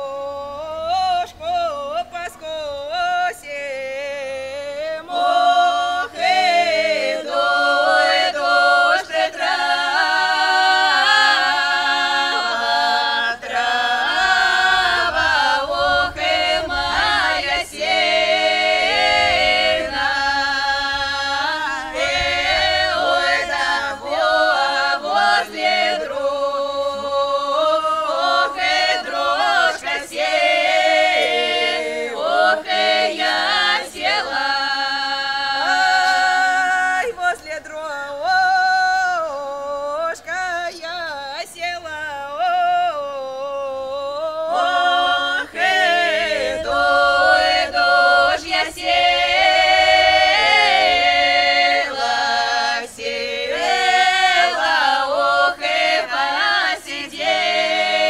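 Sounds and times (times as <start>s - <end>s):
group singing a cappella: 0.0s - 58.0s.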